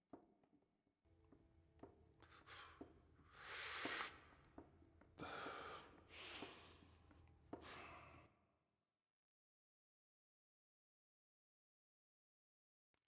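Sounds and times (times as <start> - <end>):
person breathing heavily: 2.4 - 4.2, 5.2 - 6.9, 7.6 - 8.3.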